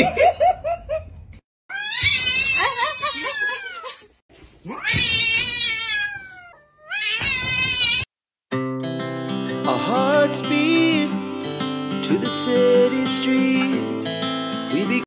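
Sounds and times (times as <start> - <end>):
cat yowling: 1.7 - 3.9, 4.7 - 8.1.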